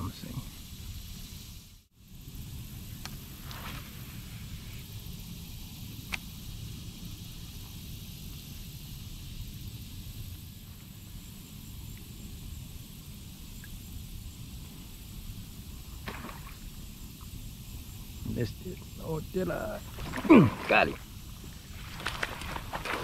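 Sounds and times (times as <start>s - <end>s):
faint high hiss: 0.0s - 23.0s
steady low rumble: 16.6s - 23.0s.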